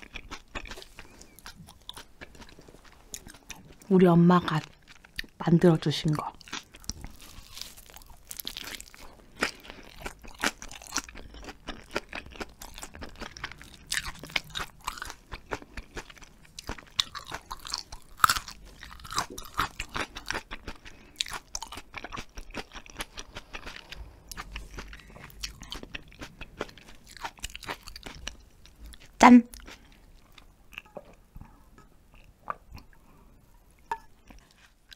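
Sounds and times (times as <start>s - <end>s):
close wet chewing: 6.1s - 31.0s.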